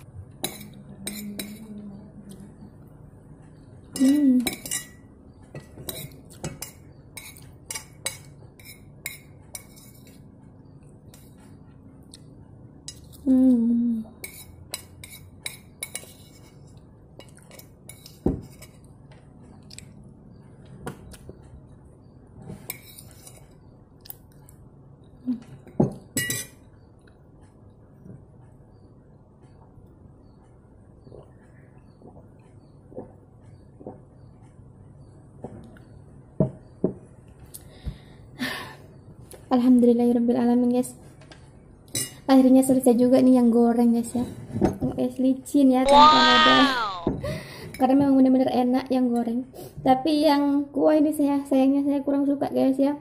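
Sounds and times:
person humming: 0:00.8 - 0:02.6, 0:45.9 - 0:47.2.

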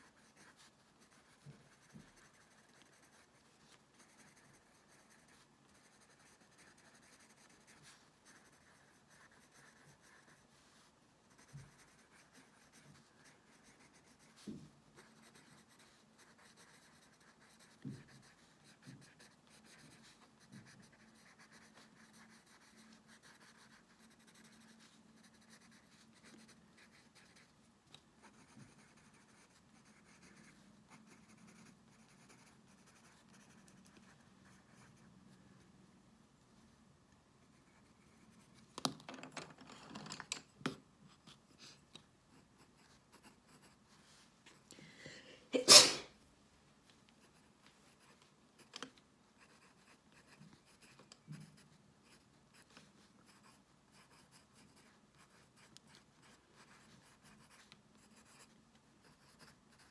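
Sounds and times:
pencil crayon scratching on paper: 0:00.0 - 0:27.5, 0:28.2 - 0:35.4, 0:42.3 - 0:44.1, 0:49.4 - 0:59.9.

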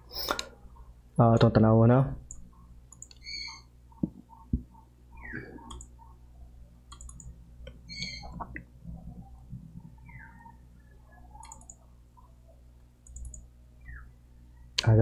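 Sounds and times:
low steady hum: 0:00.0 - 0:15.0
sharp clicks: 0:02.3 - 0:03.3, 0:05.7 - 0:05.9, 0:06.9 - 0:07.8, 0:11.4 - 0:11.8, 0:13.0 - 0:13.4
faint high chirps: 0:09.2 - 0:12.3, 0:13.0 - 0:14.8.

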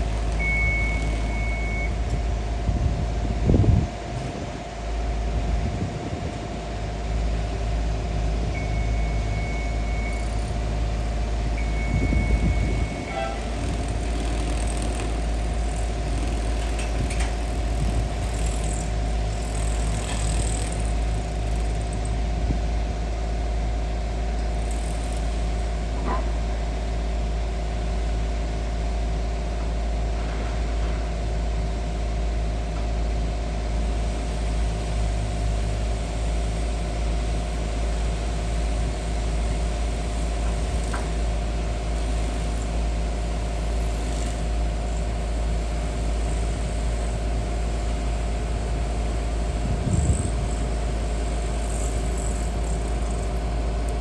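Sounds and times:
heavy vehicle engine idling: 0:00.0 - 0:54.0
long high beeps: 0:00.4 - 0:02.0, 0:08.5 - 0:10.5, 0:11.5 - 0:13.8.

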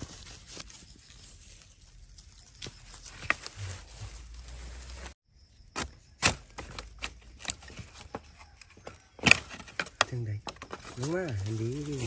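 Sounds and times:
spade chopping bamboo shoots: 0:05.8 - 0:10.0.

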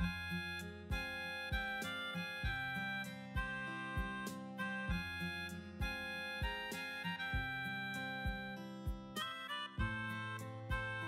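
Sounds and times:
instrumental melody music: 0:00.0 - 0:11.0.

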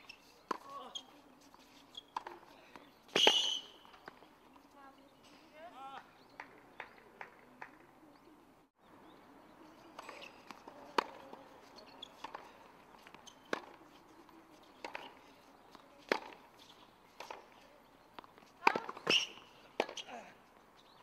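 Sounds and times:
rackets striking tennis ball: 0:02.0 - 0:04.2, 0:09.9 - 0:17.6, 0:18.2 - 0:20.2.

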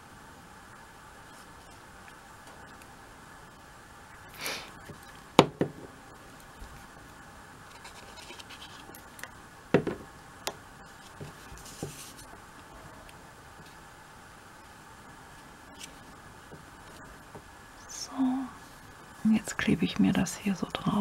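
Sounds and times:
glue tip scratching paper: 0:07.7 - 0:08.9.

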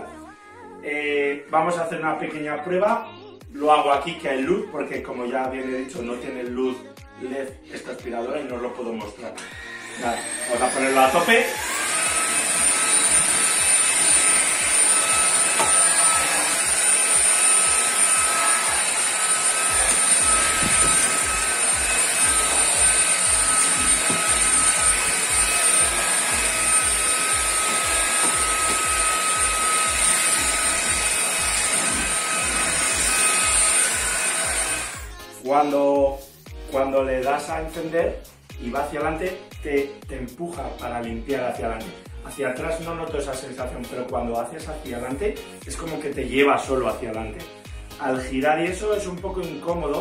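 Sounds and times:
stick vacuum whining: 0:09.4 - 0:35.1.

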